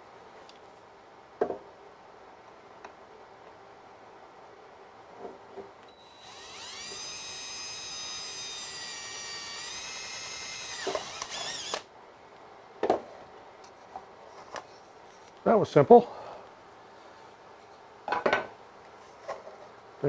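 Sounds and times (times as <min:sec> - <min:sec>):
cordless drill whining: 0:05.9 - 0:11.9.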